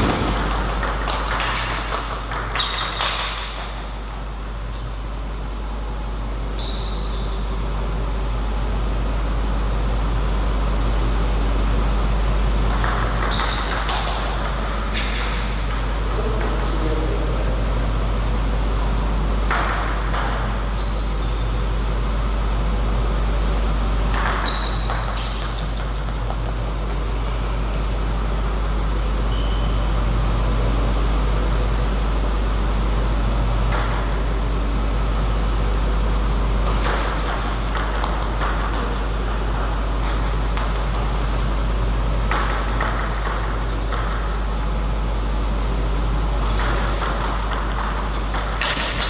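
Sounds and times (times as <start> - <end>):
table tennis ball pinging: 0.0 - 4.8, 12.7 - 16.7, 19.4 - 21.1, 24.1 - 27.0, 33.7 - 34.4, 36.6 - 41.2, 42.2 - 44.5, 46.4 - 49.0
steady low hum: 0.0 - 49.0.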